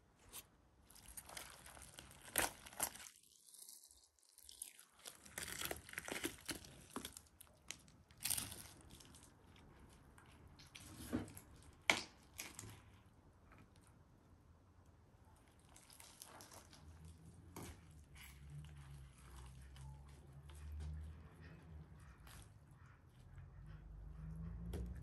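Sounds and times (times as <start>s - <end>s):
meat ripping and tearing: 0.8s - 9.6s, 10.6s - 12.9s, 15.5s - 19.8s
crisp skin crackling: 0.9s - 9.3s.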